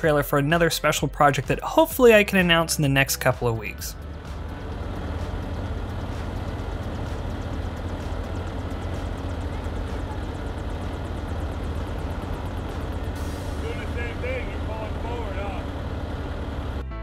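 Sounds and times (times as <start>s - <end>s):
heavy machinery engines droning: 0.0s - 17.0s
fast high ticking: 2.1s - 16.8s.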